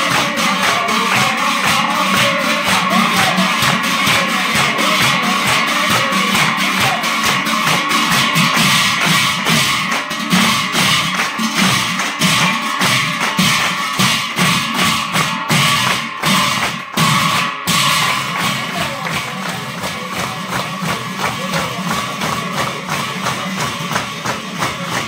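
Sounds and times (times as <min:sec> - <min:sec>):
devotional singing: 0:00.0 - 0:08.1
hand cymbals struck together: 0:00.0 - 0:25.0
hand-clapping: 0:00.0 - 0:25.0.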